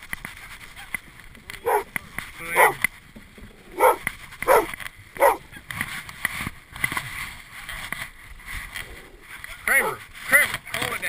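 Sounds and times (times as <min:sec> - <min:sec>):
dog barking: 0:01.6 - 0:01.9, 0:02.6 - 0:02.8, 0:03.8 - 0:05.4.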